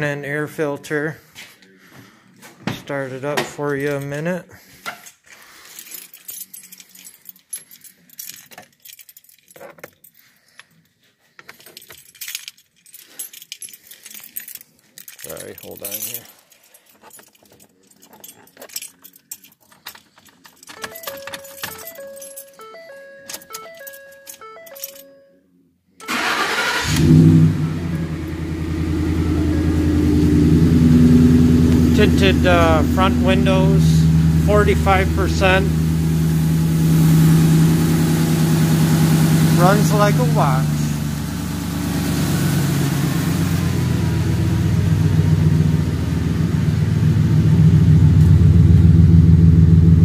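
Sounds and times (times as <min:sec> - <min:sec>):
keys jangling: 0:03.8 - 0:25.2
dashboard warning chime: 0:20.7 - 0:25.4, 0:30.5 - 0:35.8
car engine starting and idling: 0:26.0 - 0:50.0.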